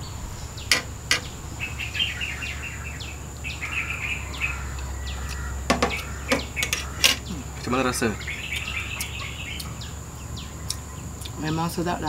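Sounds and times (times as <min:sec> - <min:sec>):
high insect drone: 0:00.0 - 0:12.0
small birds chirping: 0:00.0 - 0:12.0
cutlery clicking against plates: 0:00.7 - 0:01.3, 0:05.3 - 0:07.3.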